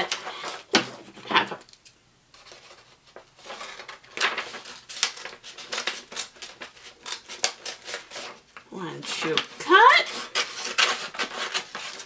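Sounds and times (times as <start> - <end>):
scissors snipping paper: 3.7 - 8.4, 9.2 - 12.0.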